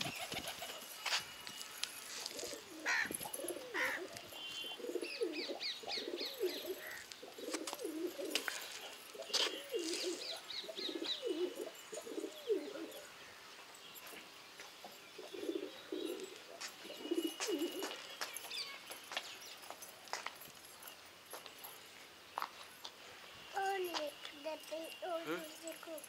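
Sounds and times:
pigeons cooing: 2.2 - 13.2, 14.9 - 18.1
bird chirping: 2.4 - 20.0.

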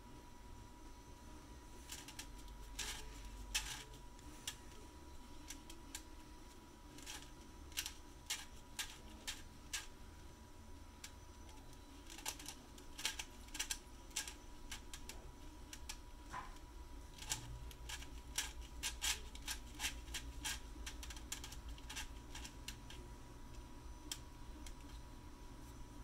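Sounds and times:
plastic puzzle pieces clicking: 6.9 - 9.9, 11.0 - 16.0, 17.2 - 23.1.

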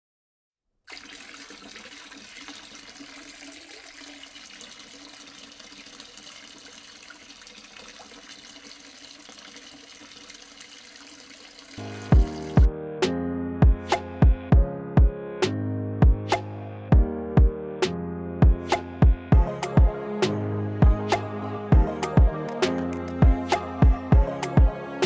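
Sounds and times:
tap water splashing into basin: 0.9 - 12.7
music with strong beat: 12.1 - 12.7, 13.6 - 15.2, 16.0 - 16.4, 17.0 - 17.6, 18.4 - 20.0, 20.8 - 21.2, 21.8 - 24.8.

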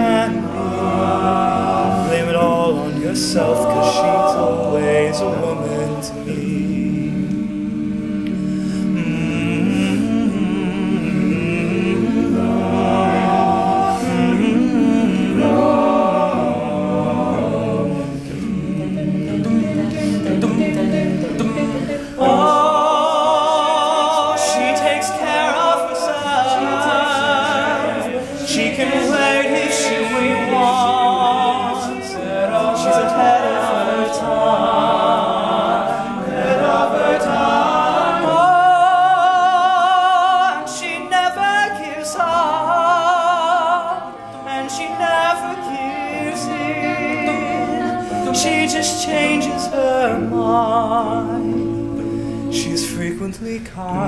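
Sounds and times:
male a cappella group singing: 0.0 - 54.0.

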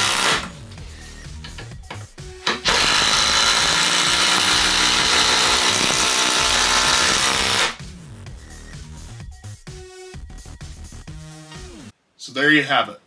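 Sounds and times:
impact driver hammering: 2.4 - 7.8.

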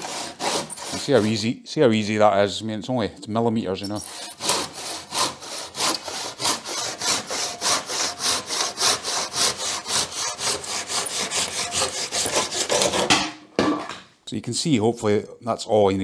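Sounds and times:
handsaw cutting wood: 0.0 - 1.5, 3.9 - 13.2.

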